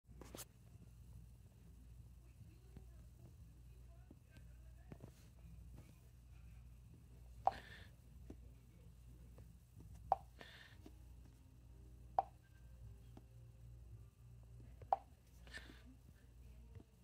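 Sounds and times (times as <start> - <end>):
taps on touchscreen: 7.5 - 7.7, 10.1 - 10.4, 12.2 - 12.4.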